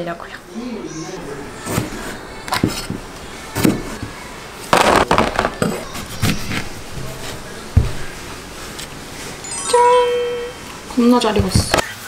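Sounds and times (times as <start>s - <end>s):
heavy thump: 5.0s - 8.6s
knife knocking on cutting board: 5.6s - 8.2s.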